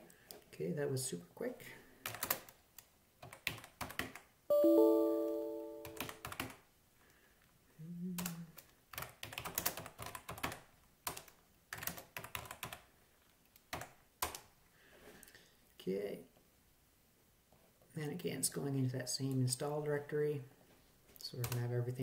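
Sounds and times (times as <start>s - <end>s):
keyboard typing: 2.0s - 2.5s, 3.2s - 6.6s, 8.9s - 12.8s
chime of steady tones: 4.5s - 6.0s.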